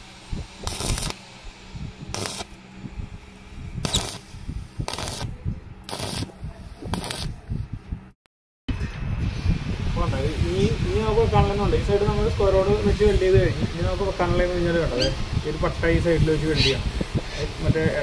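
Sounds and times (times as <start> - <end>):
welding arc crackling: 0.0 - 6.3, 6.9 - 7.4.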